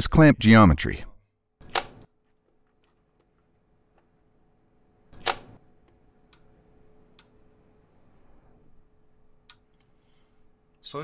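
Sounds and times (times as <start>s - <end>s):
faint steady hum: 2.8s - 11.0s.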